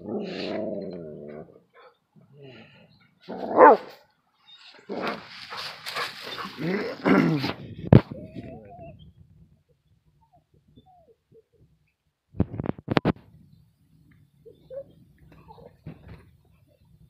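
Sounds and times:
dog barking: 3.5 - 4.0
dog whining: 6.0 - 7.0, 10.2 - 11.6.

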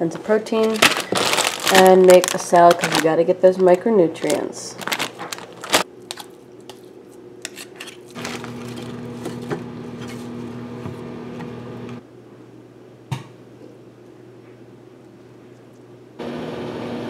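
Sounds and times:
steady mechanical hum: 0.0 - 17.0
lettuce rustling on a plate: 0.5 - 10.5.

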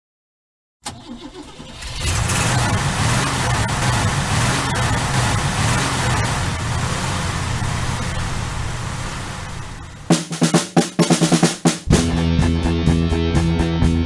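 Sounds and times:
car engine cranking: 0.8 - 10.2
car engine running loudly: 1.8 - 10.2.

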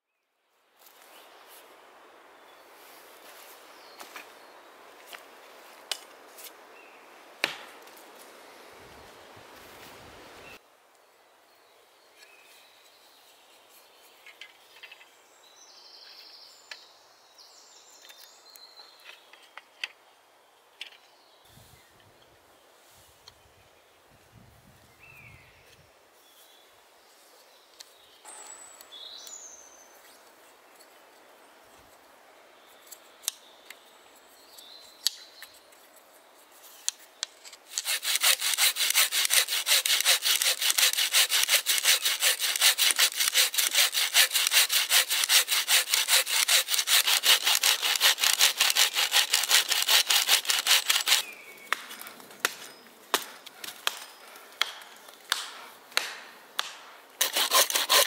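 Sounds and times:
bow saw cutting a log: 37.7 - 51.3, 57.2 - 58.0.

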